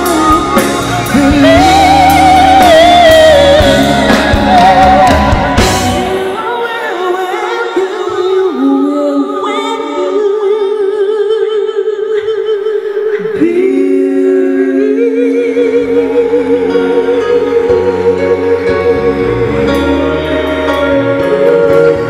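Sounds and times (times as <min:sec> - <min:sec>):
low bass notes: 0:00.0 - 0:06.4, 0:14.4 - 0:22.0
women singing in harmony: 0:00.0 - 0:22.0.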